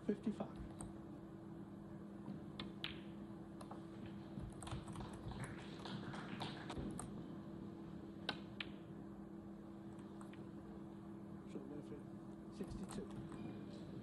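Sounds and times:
snooker balls clicking: 2.3s - 7.1s, 8.2s - 8.9s.

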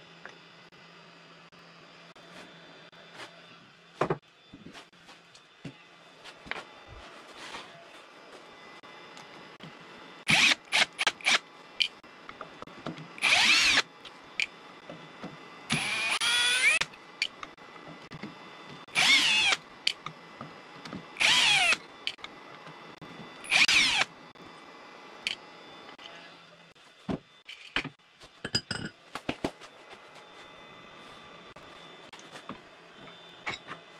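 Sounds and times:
drill motor whine: 6.8s - 11.5s, 12.2s - 26.8s
drill trigger blips: 15.7s - 17.4s, 18.9s - 20.1s, 21.2s - 22.2s, 23.4s - 24.1s.

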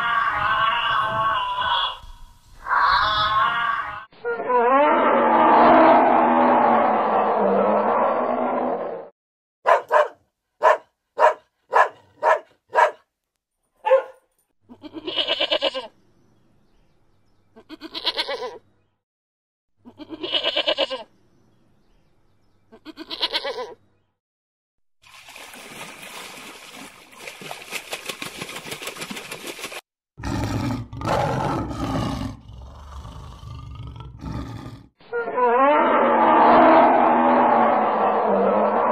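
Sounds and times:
sheep bleating: 0.0s - 2.1s, 14.7s - 15.9s, 17.6s - 18.6s, 19.9s - 21.1s, 22.7s - 23.8s
rough low roar: 4.7s - 9.1s, 30.2s - 38.9s.

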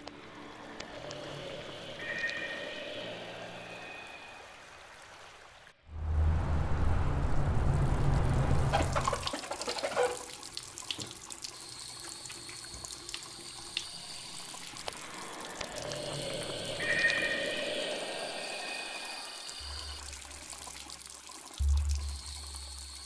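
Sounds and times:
low rumble: 5.9s - 9.1s
faucet running: 9.0s - 23.0s.

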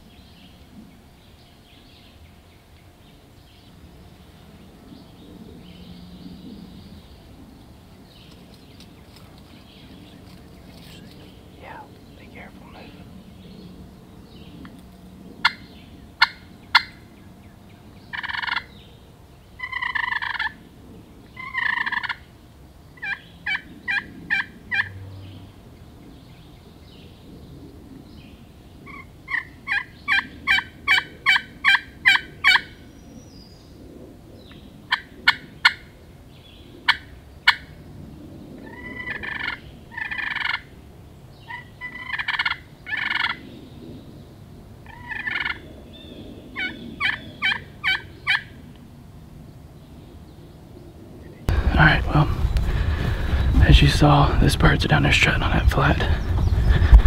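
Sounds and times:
turkeys gobbling: 15.4s - 15.6s, 16.2s - 17.0s, 18.1s - 18.7s, 19.6s - 20.6s, 21.4s - 22.2s, 23.0s - 25.0s, 28.9s - 32.8s, 34.9s - 35.9s, 36.9s - 37.7s, 38.7s - 40.7s, 41.5s - 43.4s, 44.9s - 45.6s, 46.6s - 48.5s
turkey yelping notes: 16.2s - 17.0s, 18.1s - 18.7s, 19.6s - 20.6s, 21.4s - 22.2s, 23.0s - 25.0s, 28.9s - 32.8s, 38.7s - 40.7s, 41.5s - 43.4s, 44.9s - 45.6s, 46.6s - 48.5s.

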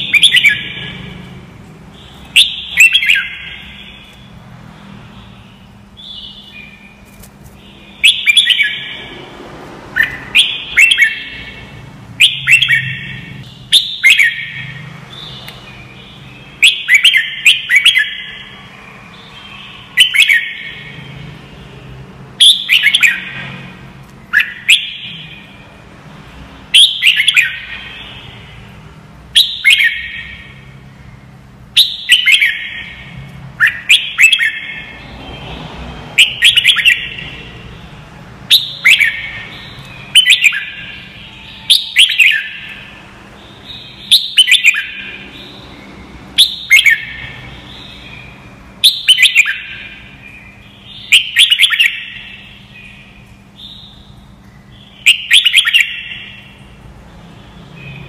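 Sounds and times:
bird singing whistled notes: 0.0s - 1.1s, 2.0s - 4.3s, 5.2s - 7.0s, 7.6s - 9.0s, 10.0s - 21.2s, 22.4s - 23.6s, 24.3s - 25.6s, 26.7s - 28.6s, 29.4s - 30.6s, 31.8s - 35.1s, 36.2s - 37.6s, 38.5s - 56.6s.

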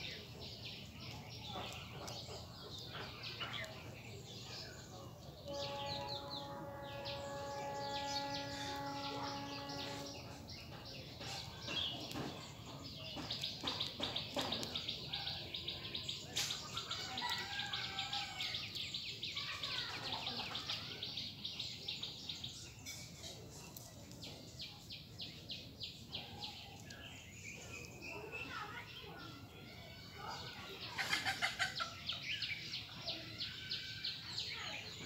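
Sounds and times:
bird calls: 0.0s - 34.8s.

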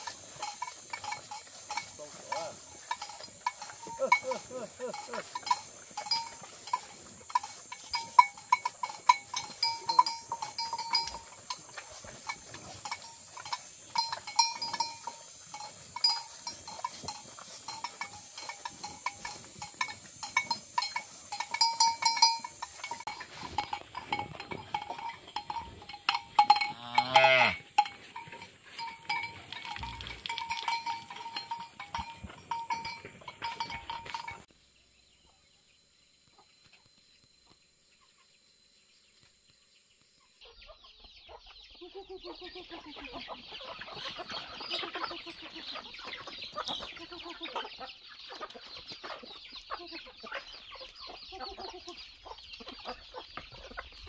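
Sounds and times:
cow calling: 0.0s - 34.4s
cow bell clanking: 0.0s - 34.5s.

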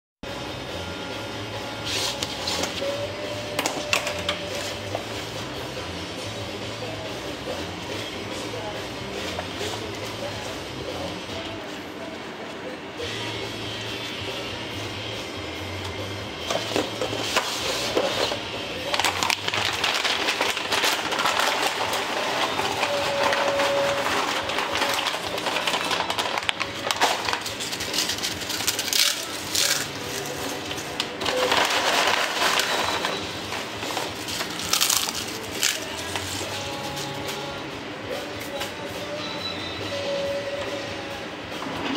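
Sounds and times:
plastic bag crinkling: 18.9s - 36.3s
tortilla chips crunching: 19.0s - 30.6s, 34.2s - 36.3s.

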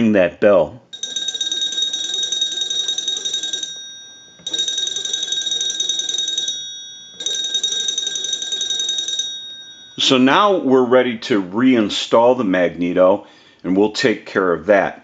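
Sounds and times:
small bell ringing rapidly: 0.9s - 10.5s.

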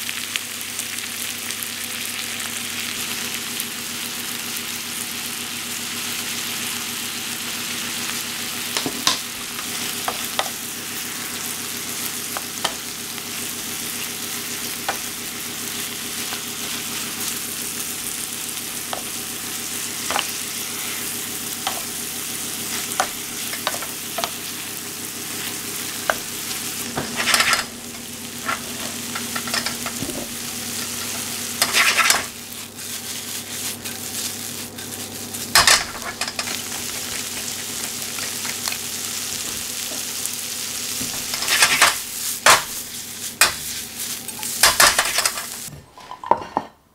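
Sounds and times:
vegetables sizzling in a frying pan: 0.0s - 46.2s
wooden spoon scraping a pan: 22.6s - 24.4s, 25.4s - 38.3s, 41.0s - 46.7s.

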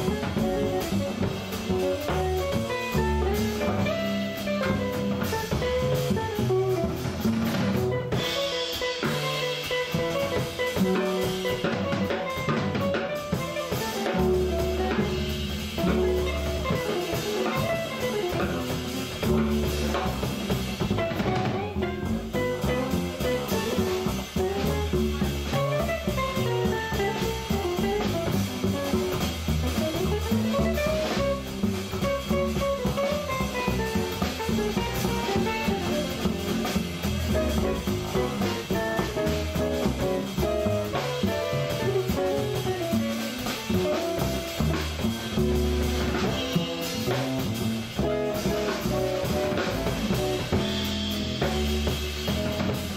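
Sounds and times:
electric guitar melody: 0.0s - 20.1s
drum kit with cymbals: 0.0s - 52.9s
upright bass: 0.0s - 52.9s.

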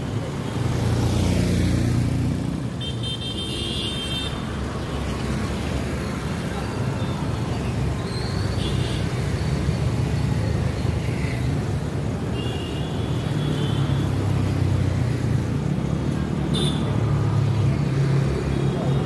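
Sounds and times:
road traffic driving past: 0.0s - 19.0s.

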